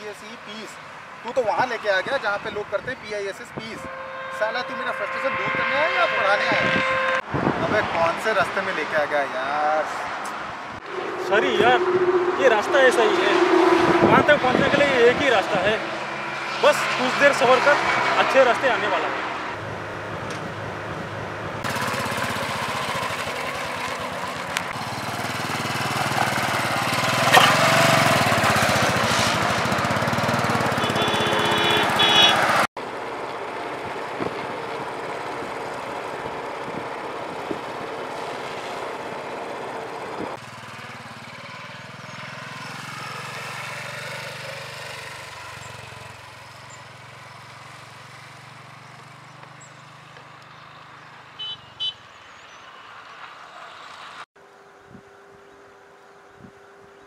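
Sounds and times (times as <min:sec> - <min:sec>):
short horn beeps: 0:03.8 - 0:07.2, 0:30.7 - 0:32.4, 0:51.4 - 0:52.0
motorcycle engine running: 0:19.6 - 0:51.9.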